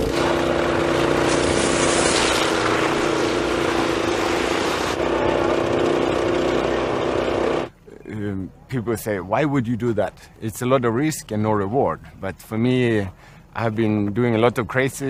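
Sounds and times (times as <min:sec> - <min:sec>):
snowblower engine running: 0:00.0 - 0:07.8
loud hiss: 0:01.0 - 0:05.0.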